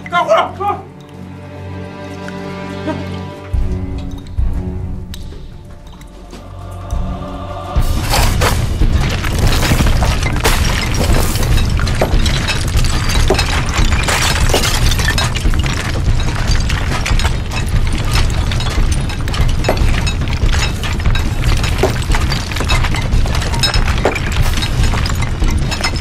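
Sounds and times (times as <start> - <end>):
steady low rumble: 6.4 - 26.0
picks and hammers striking rock: 7.8 - 26.0
cracking stone: 7.9 - 26.0.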